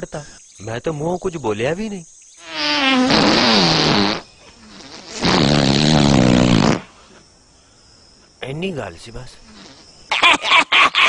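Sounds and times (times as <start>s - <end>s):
comic fart sounds: 2.4s - 7.0s, 9.5s - 10.2s.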